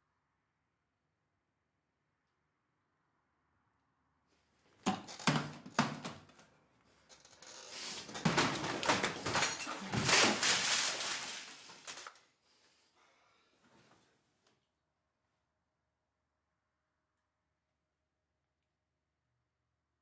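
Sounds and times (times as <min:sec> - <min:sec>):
clattering and rustling: 0:04.8 - 0:12.2.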